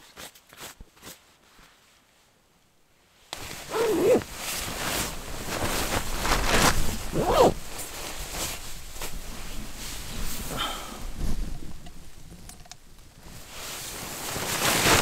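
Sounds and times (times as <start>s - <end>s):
zipper pulled: 3.4s - 7.6s
nylon bag crinkling and rustling: 3.4s - 10.5s, 13.2s - 15.0s.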